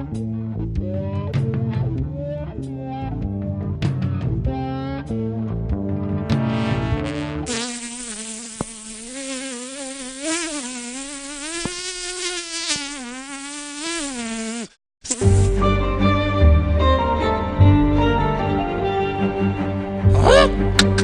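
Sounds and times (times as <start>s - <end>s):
bowed string music: 15.2s - 21.0s.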